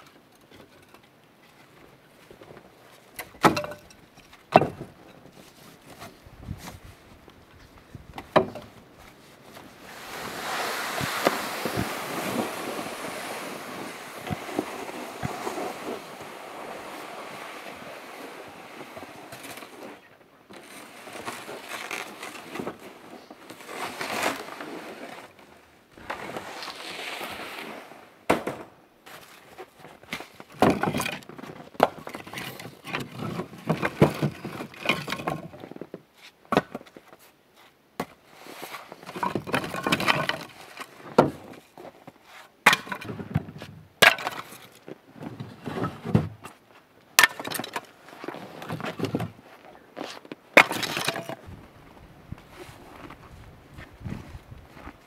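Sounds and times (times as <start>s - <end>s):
firewood knocking and clattering: 3.2s - 5.1s, 8.1s - 8.8s, 30.1s - 35.6s, 39.1s - 41.5s, 42.6s - 44.6s, 47.2s - 47.9s, 50.6s - 51.5s
snow crunching underfoot: 9.2s - 19.3s.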